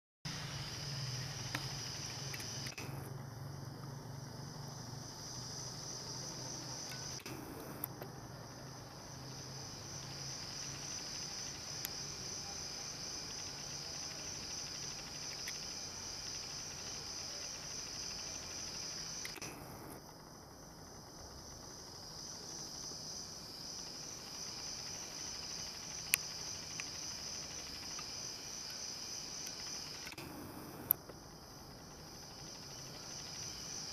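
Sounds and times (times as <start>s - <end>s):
night insects trilling: 0.3s - 33.9s
sharp clicks: 1.5s - 3.1s, 6.8s - 8.1s, 19.2s - 20.0s, 29.4s - 31.1s.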